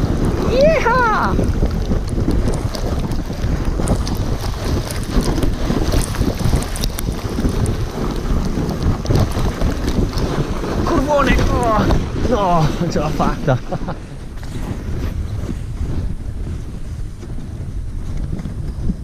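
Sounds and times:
sled runners scraping on snow: 0.0s - 19.0s
wind buffeting microphone: 0.0s - 19.0s.

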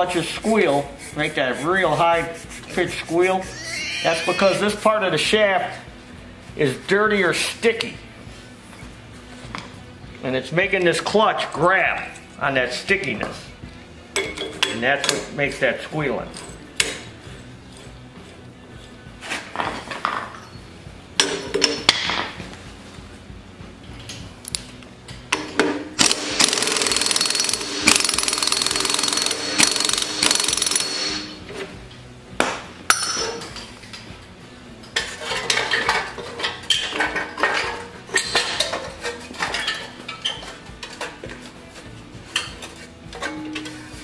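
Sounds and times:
impact wrench hammering: 25.4s - 31.4s.

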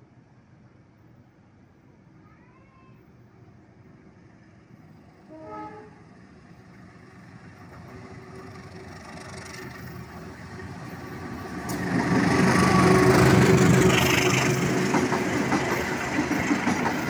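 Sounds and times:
train rumble: 0.0s - 17.0s
locomotive horn blast: 5.3s - 6.1s.

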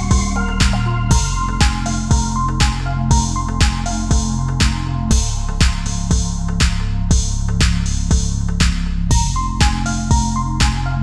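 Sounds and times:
electronic beat music: 0.0s - 11.0s.

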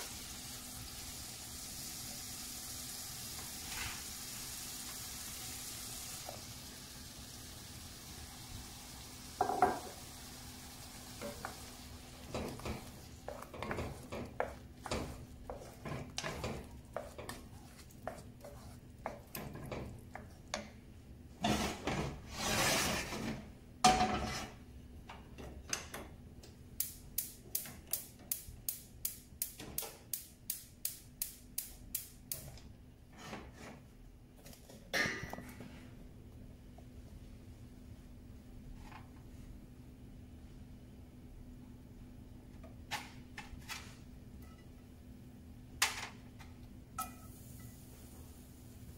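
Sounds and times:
pans clattering: 9.4s - 10.0s, 21.4s - 24.6s
wooden spoon scraping pan: 11.2s - 20.5s, 21.4s - 23.5s, 24.1s - 24.6s.

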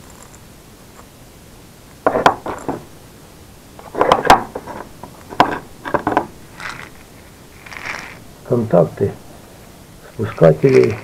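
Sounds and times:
jars knocking on wooden workbench: 2.0s - 2.8s, 3.9s - 6.3s.

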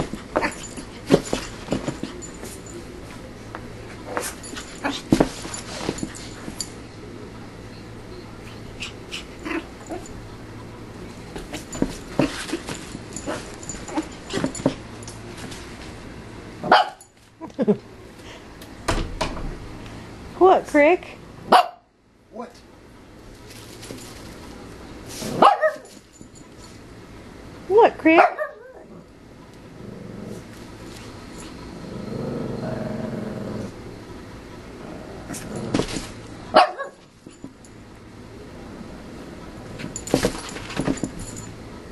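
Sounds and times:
dog yipping and barking: 25.4s - 25.9s, 28.2s - 28.8s, 36.6s - 37.0s
small dog growling: 28.7s - 30.6s, 31.7s - 33.8s, 34.7s - 36.0s.

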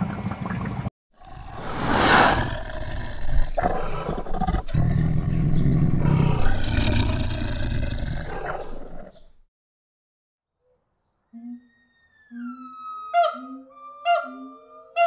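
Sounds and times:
tiger growling and roaring: 1.2s - 9.2s.

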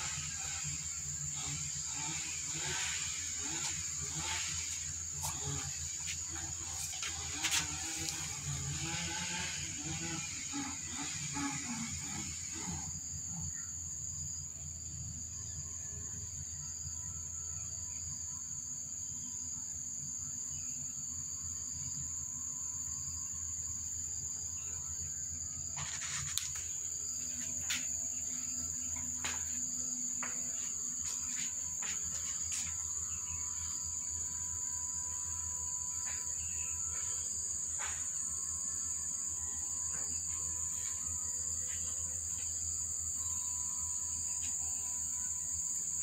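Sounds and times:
insects shrilling: 0.0s - 14.9s, 22.8s - 46.0s.

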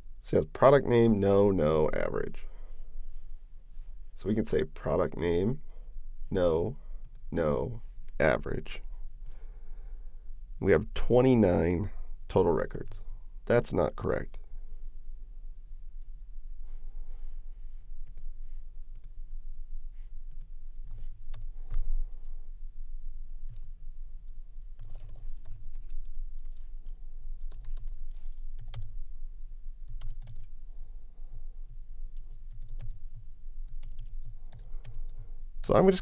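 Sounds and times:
low steady hum: 0.0s - 36.0s
typing on computer keyboard: 24.8s - 28.9s, 29.9s - 30.5s, 32.2s - 35.1s.

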